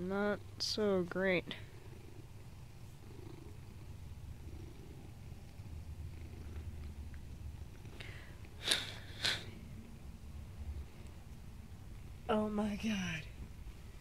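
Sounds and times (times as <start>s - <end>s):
cat purring: 0.0s - 12.3s.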